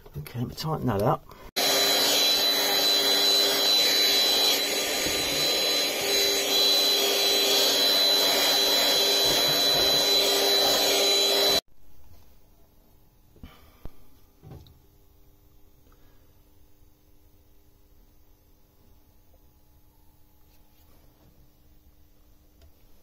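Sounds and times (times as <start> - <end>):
vacuum cleaner whining: 1.6 - 11.6.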